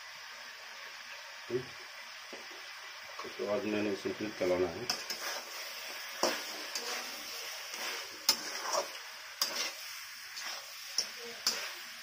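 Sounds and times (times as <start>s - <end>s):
steady sizzle: 0.0s - 12.0s
metal spatula scraping pan: 4.9s - 11.9s.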